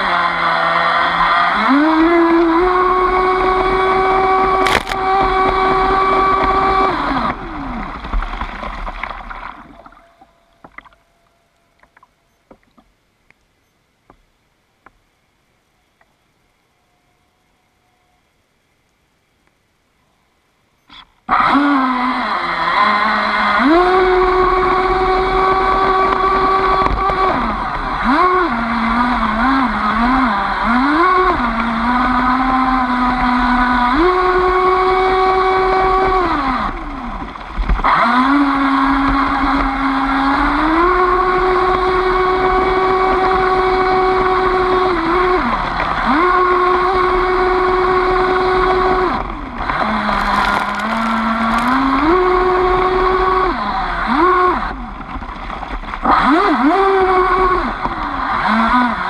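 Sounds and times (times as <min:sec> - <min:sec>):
electric motor whine: 0:00.0 - 0:08.3, 0:21.3 - 0:59.0.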